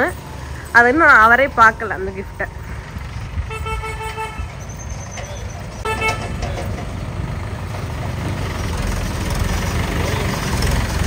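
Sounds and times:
diesel tractor engine rumbling: 0:00.0 - 0:11.0
vehicle horn tooting: 0:03.4 - 0:04.6, 0:05.8 - 0:06.4.

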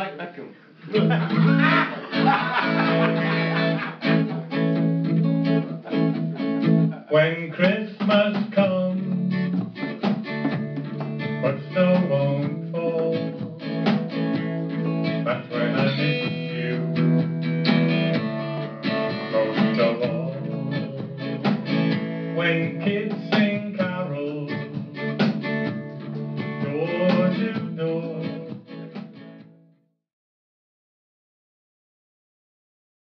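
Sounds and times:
man singing: 0:00.9 - 0:03.9, 0:06.9 - 0:09.6, 0:11.4 - 0:13.9, 0:15.2 - 0:16.8, 0:19.2 - 0:21.5, 0:22.3 - 0:25.0, 0:26.6 - 0:28.7
strummed acoustic guitar: 0:01.0 - 0:29.6.

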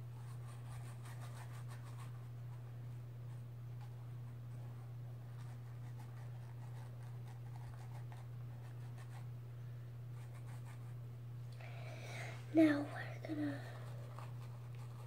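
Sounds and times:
steady low hum: 0:00.0 - 0:15.0
paintbrush brushing on canvas: 0:13.7 - 0:15.0.

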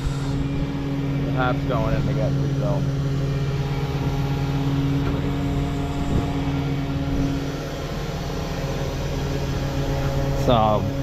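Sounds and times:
large engine running: 0:00.0 - 0:11.0.

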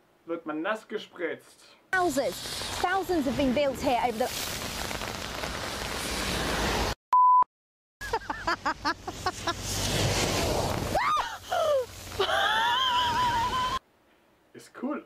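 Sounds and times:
steady rain: 0:02.0 - 0:07.0, 0:09.3 - 0:13.8
woman screaming: 0:11.0 - 0:13.8.

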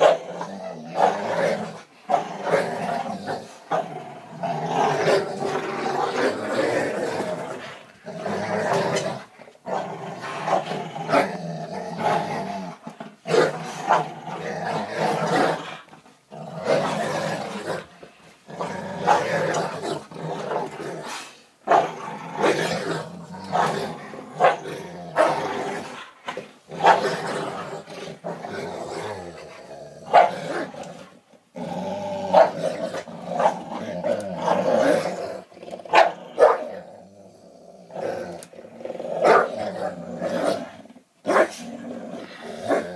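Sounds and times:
dogs growling in play: 0:00.0 - 0:42.9
dog barks: 0:24.4 - 0:24.6, 0:30.1 - 0:30.7, 0:32.4 - 0:32.6, 0:35.9 - 0:36.7, 0:39.2 - 0:39.5, 0:41.3 - 0:41.6.

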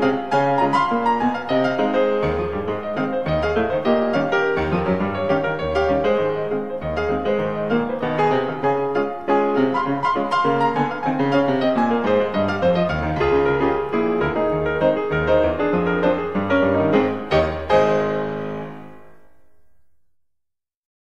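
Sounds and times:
piano music: 0:00.0 - 0:20.2.

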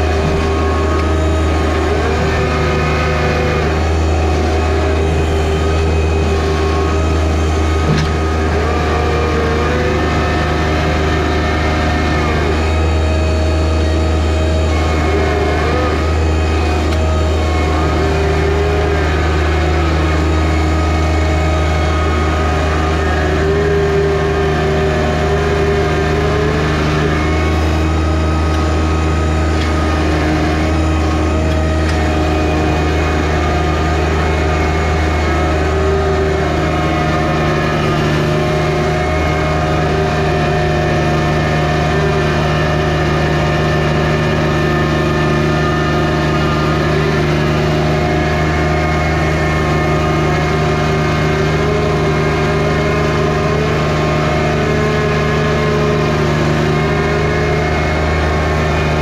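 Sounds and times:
tractor diesel engine running: 0:00.0 - 0:59.0.

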